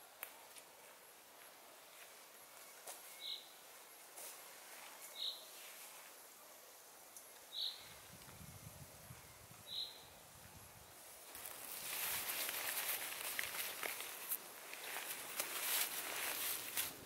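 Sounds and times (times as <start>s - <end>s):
faint woodland ambience: 0.0s - 17.0s.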